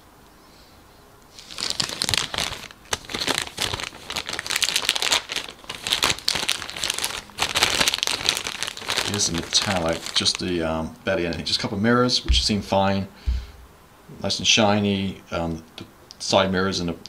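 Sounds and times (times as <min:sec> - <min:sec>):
plastic bag crinkling: 0:01.3 - 0:10.6.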